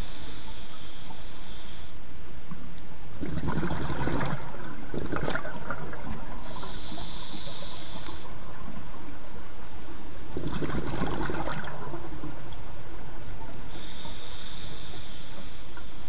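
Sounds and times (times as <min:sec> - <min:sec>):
regulator hissing: 0:03.0 - 0:16.0
exhaled bubbles rushing: 0:03.2 - 0:06.7, 0:10.3 - 0:12.7.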